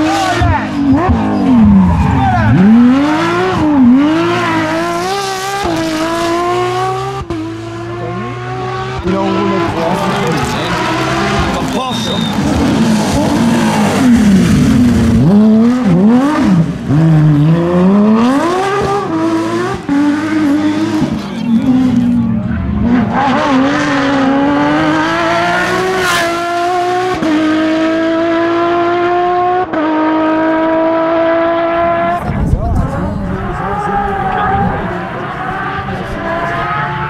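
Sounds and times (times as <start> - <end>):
rally car engine at full throttle: 0.0 - 37.0.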